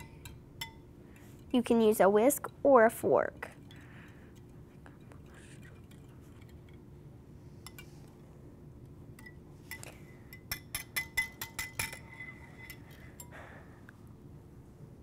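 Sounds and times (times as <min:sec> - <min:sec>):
metal whisk clinking on glass: 0:00.0 - 0:01.5, 0:09.2 - 0:13.3.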